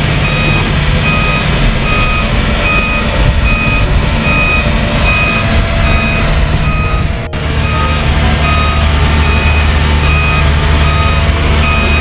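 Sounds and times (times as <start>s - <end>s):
low engine rumble: 0.0s - 12.0s
machinery warning beeps: 0.2s - 12.0s.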